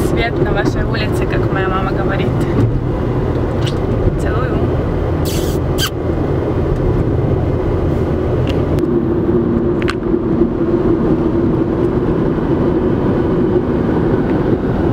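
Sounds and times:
car cabin road rumble: 0.0 - 14.9.

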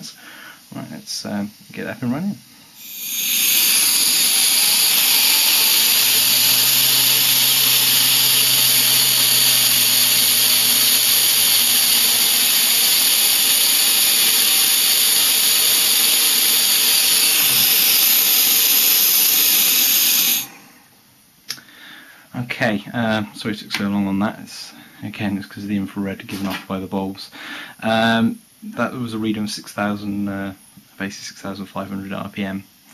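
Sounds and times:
compressed air hissing: 0.0 - 20.9.

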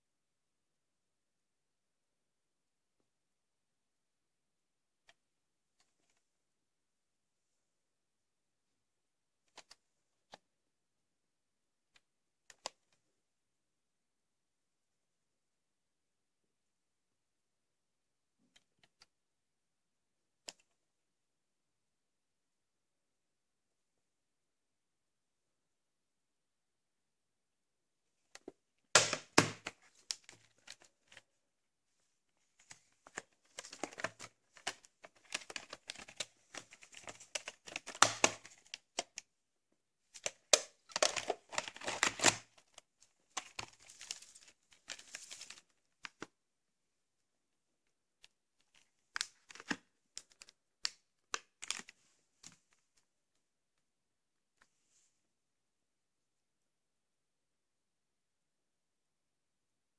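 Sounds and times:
plastic cassette case clattering: 33.0 - 39.1, 40.2 - 42.4.

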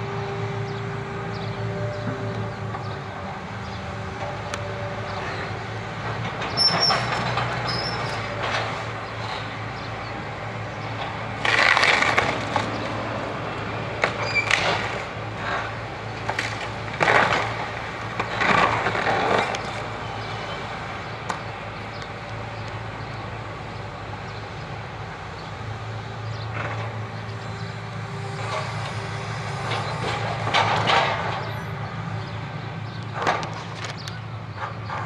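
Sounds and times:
excavator diesel engine running: 0.0 - 35.0
splintering and falling debris: 11.4 - 12.7.

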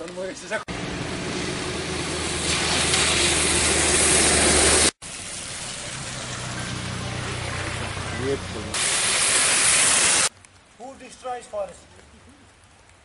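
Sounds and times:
van engine hum: 0.7 - 8.8
rain: 0.7 - 13.0
tyres hissing through water: 1.4 - 10.3.

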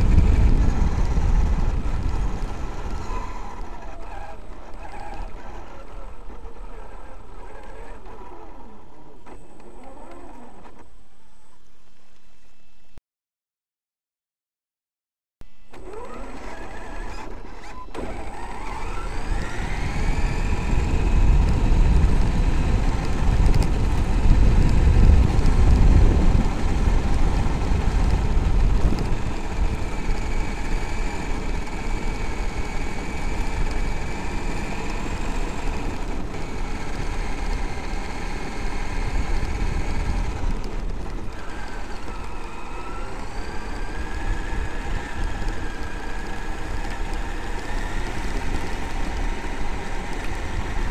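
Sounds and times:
electric motor whining: 15.6 - 50.9
tyres rumbling on gravel: 15.8 - 50.9.

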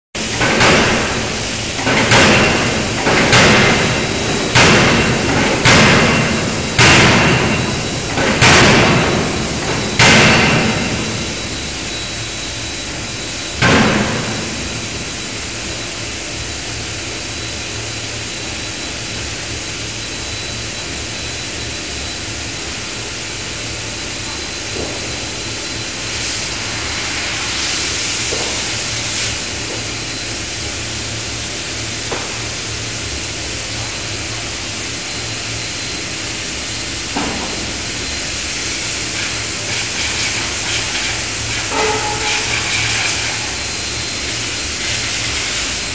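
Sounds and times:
machinery hum: 0.2 - 45.9
hiss: 37.7 - 45.9.

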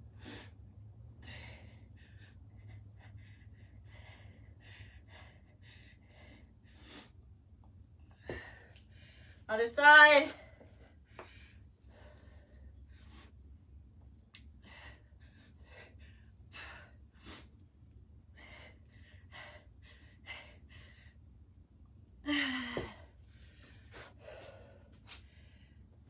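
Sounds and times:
woman breathing hard: 0.0 - 7.3, 8.0 - 9.5, 10.4 - 13.5, 14.5 - 21.4, 22.2 - 26.0
woman sighing: 22.2 - 23.1.

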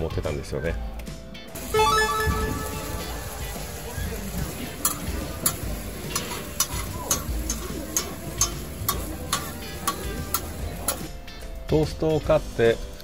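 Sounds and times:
food sizzling on griddle: 1.5 - 11.2
metal spatulas clacking on griddle: 4.7 - 11.1.

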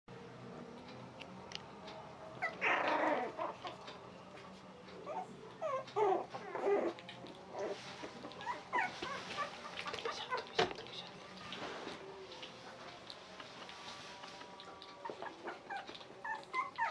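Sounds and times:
puppies whining and squeaking: 2.4 - 4.0, 4.9 - 10.6, 13.7 - 16.9.

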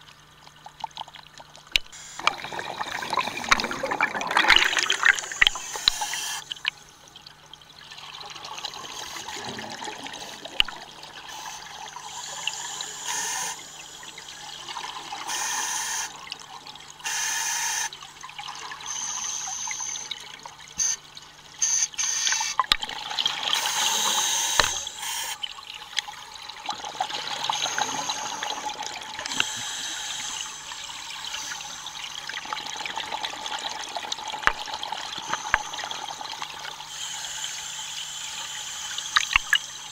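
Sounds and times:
bubbling exhalations: 2.2 - 5.6
regulator hissing inhalations: 11.3 - 14.3, 15.3 - 16.2, 17.1 - 17.9, 18.8 - 20.1, 23.6 - 25.4, 29.3 - 31.8, 36.9 - 39.9.

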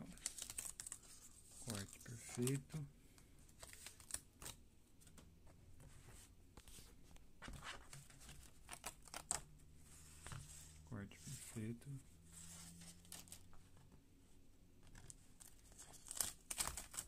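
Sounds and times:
paper rustling and crackling: 0.1 - 2.8, 12.3 - 13.9, 14.8 - 17.0.

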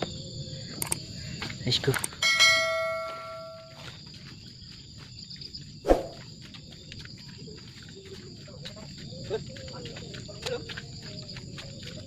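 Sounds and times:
insect chirring: 0.0 - 12.0
bell-like metallic ring: 2.2 - 3.8.

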